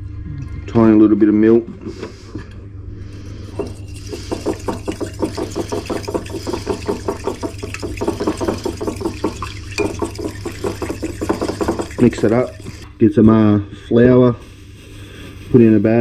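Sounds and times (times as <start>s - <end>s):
low steady hum: 0.0s - 16.0s
fork beating eggs in a bowl: 3.6s - 12.9s.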